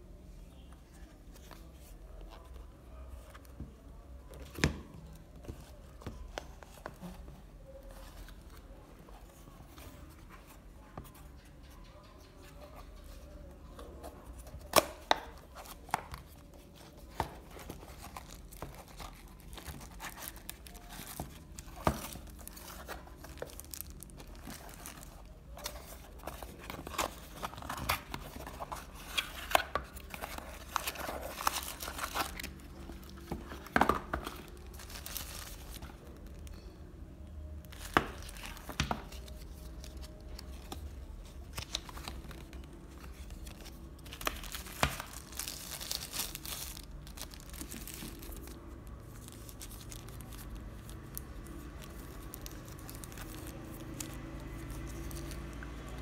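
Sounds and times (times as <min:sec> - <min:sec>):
plastic wrapping crinkling: 0:15.6 - 0:36.6, 0:37.6 - 0:56.0.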